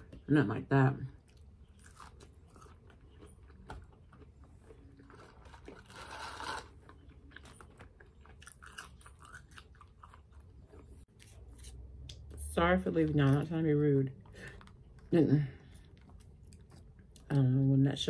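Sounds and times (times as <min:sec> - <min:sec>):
chewing crunches: 0:01.2 - 0:12.4, 0:14.3 - 0:17.4.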